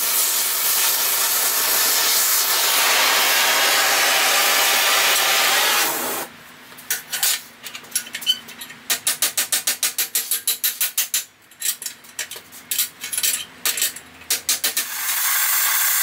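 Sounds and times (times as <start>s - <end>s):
torch flame hissing: 0.0s - 6.3s, 14.9s - 16.0s.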